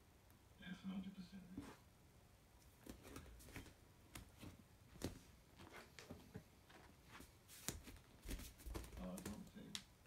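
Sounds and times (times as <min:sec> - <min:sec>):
faint clicks and taps: 0:02.6 - 0:09.9.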